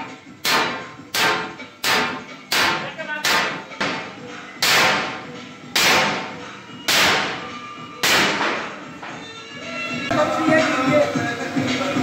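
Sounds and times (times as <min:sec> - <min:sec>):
hammer striking steel drum: 0:00.4 - 0:08.8.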